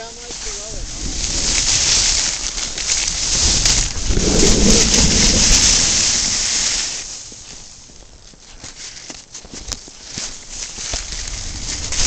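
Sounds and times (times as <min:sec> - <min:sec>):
snowboard hissing over snow: 0:00.0 - 0:09.1, 0:09.9 - 0:12.0
wind rumbling on microphone: 0:00.0 - 0:12.0.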